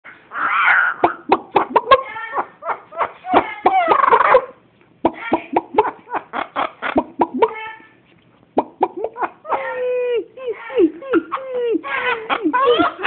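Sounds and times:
parrots chirping and squawking: 0.1 - 4.6, 11.8 - 13.0.

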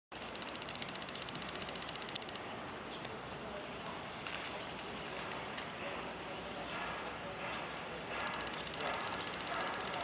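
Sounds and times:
small animal chirping: 0.2 - 2.7, 7.2 - 10.0
outdoor background hiss: 0.2 - 10.0.

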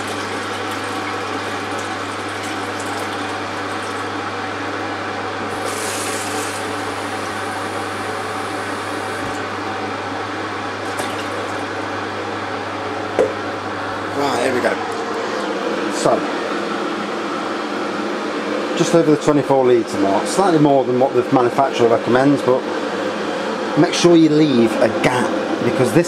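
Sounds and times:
tap water running into jug: 0.0 - 4.1, 5.4 - 9.5, 10.8 - 11.7.

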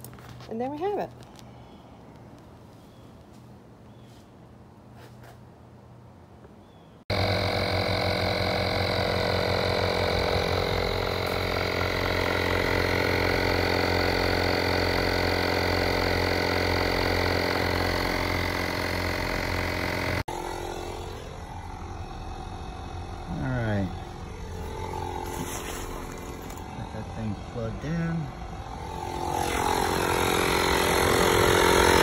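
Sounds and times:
tire inflator compressor running: 7.1 - 32.0.

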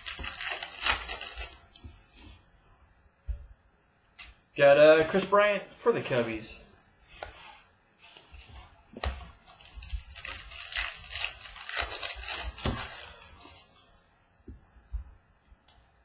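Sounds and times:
wrapper crinkling and rustling: 0.0 - 2.2, 9.4 - 13.9.

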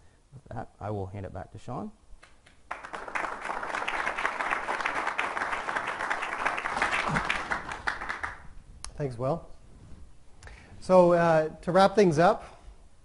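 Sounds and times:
audience applauding: 2.7 - 8.5.

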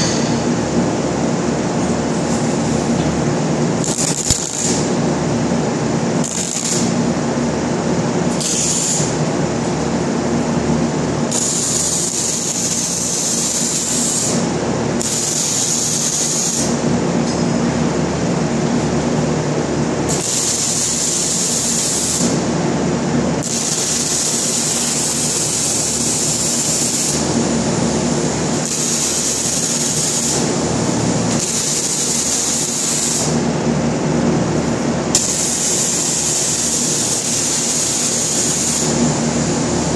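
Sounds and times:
steady low hum: 0.0 - 39.9
welding arc hissing: 3.8 - 5.1, 6.1 - 7.1, 8.3 - 9.2, 11.3 - 16.8, 20.1 - 22.5, 23.4 - 33.5, 35.2 - 39.8.

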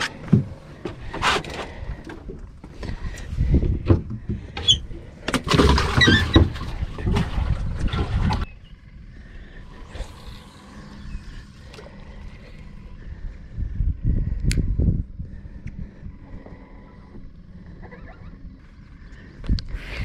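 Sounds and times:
knocks and rattling on boat deck: 0.0 - 2.8, 3.4 - 8.4
faint steady hum: 0.0 - 20.0.

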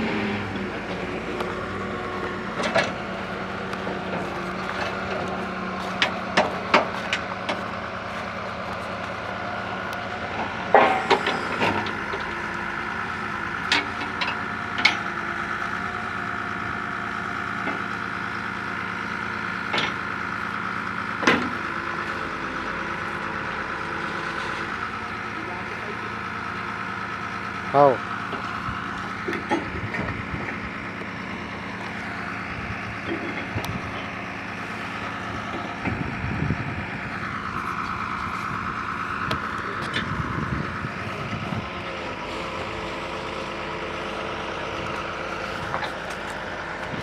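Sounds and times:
drilling rig machine hum: 0.0 - 47.0.

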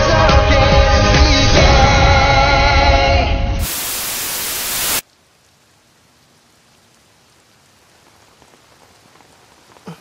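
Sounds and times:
steady rain falling: 3.6 - 10.0.

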